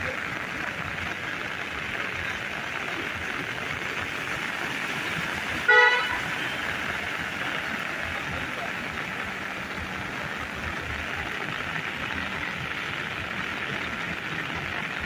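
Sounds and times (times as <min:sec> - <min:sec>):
rain on flooded street: 0:00.0 - 0:15.0
vehicle horn toot: 0:05.7 - 0:06.5.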